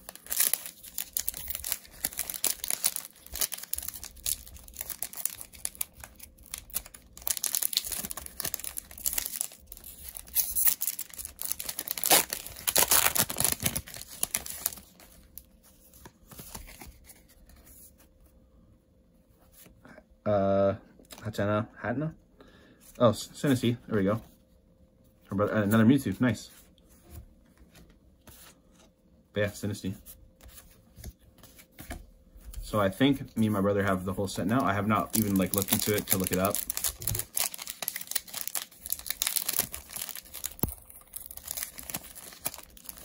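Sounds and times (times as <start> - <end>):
foil wrapper crinkling and tearing: 0.0 - 15.5, 34.6 - 43.0.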